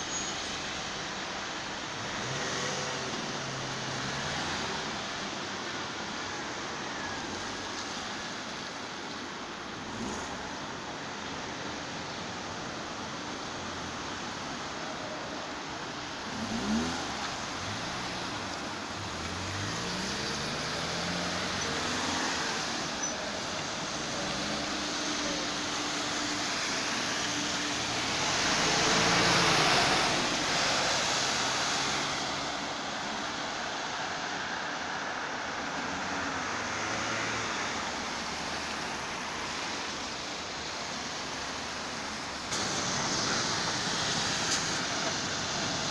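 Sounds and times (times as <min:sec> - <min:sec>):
cars driving: 0:00.0 - 0:45.9
bus passing close: 0:15.0 - 0:33.5, 0:35.6 - 0:45.9.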